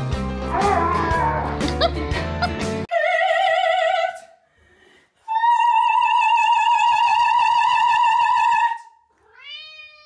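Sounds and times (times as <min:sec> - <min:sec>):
cat yowling: 0:00.6 - 0:01.6, 0:09.3 - 0:10.0.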